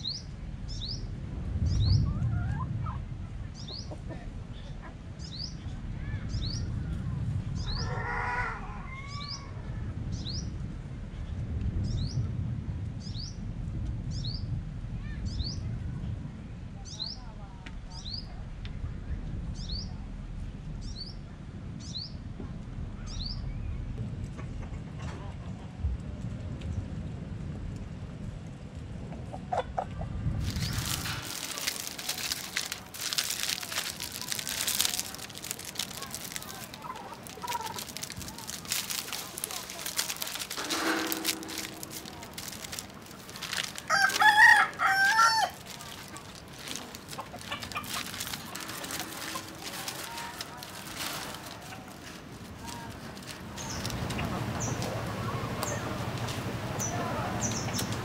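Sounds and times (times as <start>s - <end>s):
steady low rumble: 30.0s - 58.0s
dry twigs rustling and crackling: 30.4s - 58.0s
rooster crowing: 43.9s - 45.6s.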